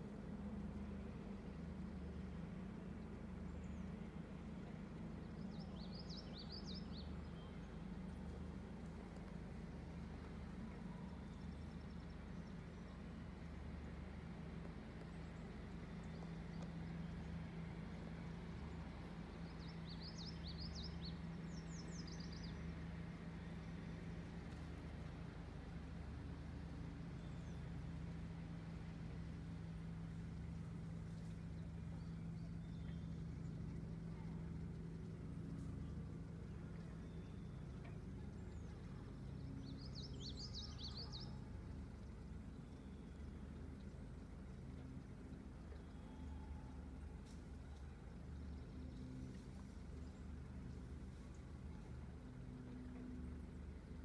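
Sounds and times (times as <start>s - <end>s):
low steady rumble: 0.0s - 54.0s
steady low hum: 0.0s - 54.0s
songbird twittering: 35.5s - 46.6s.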